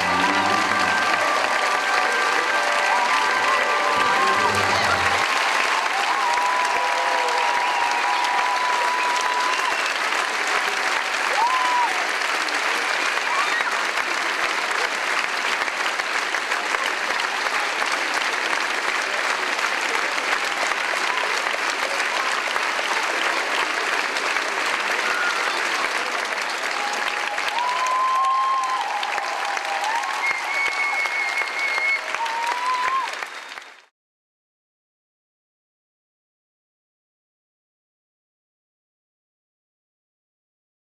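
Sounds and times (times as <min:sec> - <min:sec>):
audience applauding: 0:00.0 - 0:33.9.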